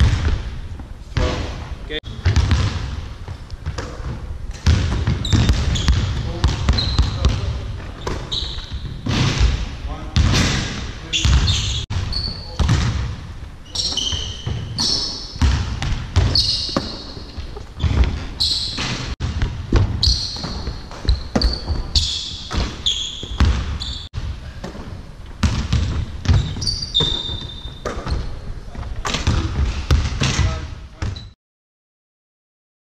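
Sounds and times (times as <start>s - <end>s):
basketballs bouncing on wooden floor: 0.0s - 0.5s, 2.1s - 28.2s, 29.0s - 31.3s
sneakers squeaking on floor: 3.3s - 9.6s, 11.0s - 13.0s, 13.6s - 24.1s, 25.4s - 31.4s.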